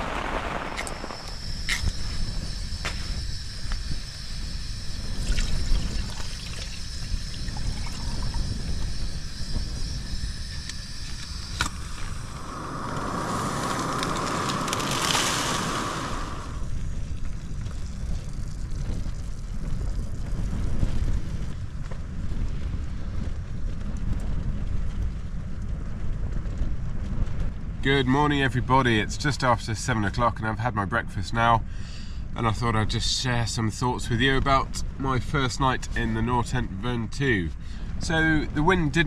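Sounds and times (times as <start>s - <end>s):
gas stove burning: 0.0s - 29.2s
wind against a tent: 0.0s - 30.2s, 31.0s - 39.0s.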